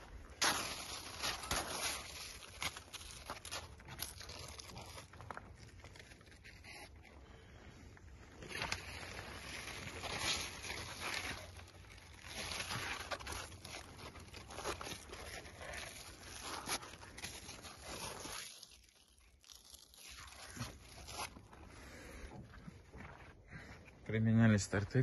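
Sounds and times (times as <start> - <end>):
vines rustling and crunching: 0.0 - 23.7
footsteps: 21.3 - 24.0.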